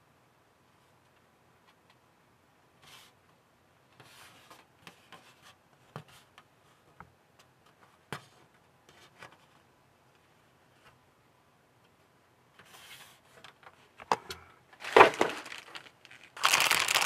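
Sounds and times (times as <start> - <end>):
plastic rubbing and rustling: 14.8 - 17.0.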